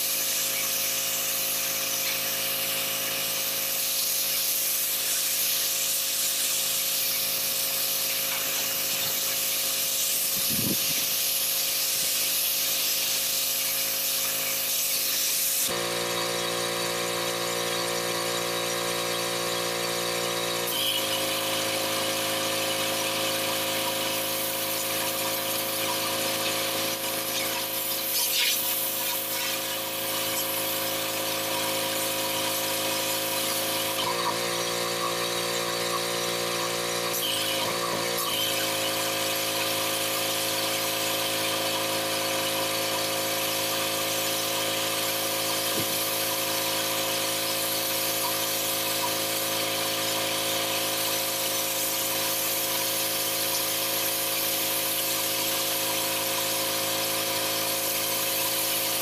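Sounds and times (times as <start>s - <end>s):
hiss of water spray: 0.0s - 15.7s
pressure washer machine hum: 0.0s - 59.0s.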